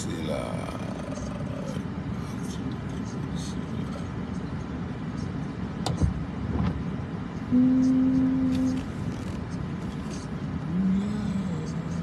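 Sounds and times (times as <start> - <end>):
car and traffic rumble: 0.0 - 12.0
steady single-pitched tone: 7.5 - 8.8.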